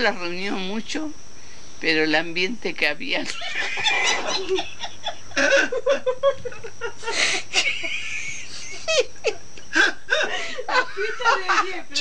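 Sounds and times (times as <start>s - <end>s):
people laughing: 3.3s - 12.0s.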